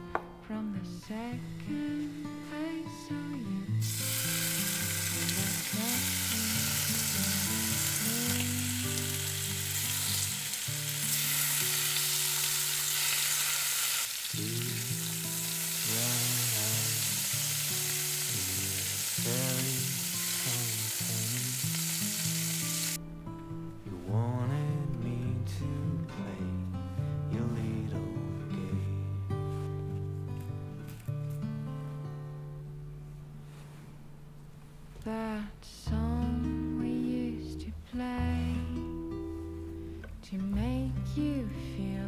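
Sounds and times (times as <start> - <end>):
soft guitar music: 0.0 - 42.0
bacon sizzling in a pan: 3.8 - 23.0.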